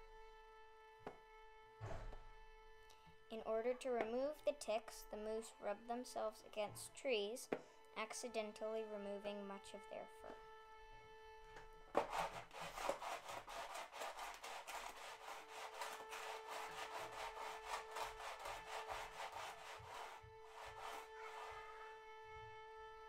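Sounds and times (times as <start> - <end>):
rough scraping against wood: 11.9 - 21.9
held musical note: 15.3 - 22.9.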